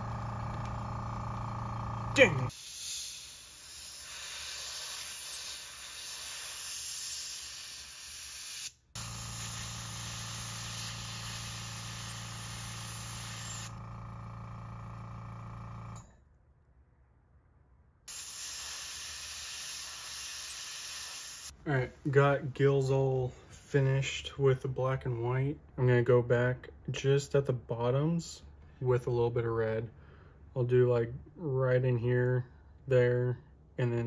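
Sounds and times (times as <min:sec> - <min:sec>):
airbrush hissing: 0:02.5 - 0:13.8, 0:18.1 - 0:21.6.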